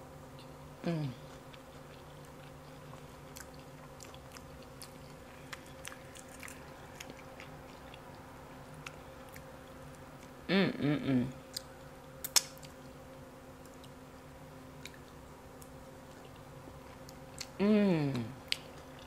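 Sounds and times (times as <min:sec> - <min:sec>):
faint steady hum: 0:00.0 - 0:19.0
soft chewing: 0:00.3 - 0:10.5, 0:11.3 - 0:19.0
person humming mmm: 0:00.8 - 0:01.3, 0:10.4 - 0:11.4, 0:17.6 - 0:18.4.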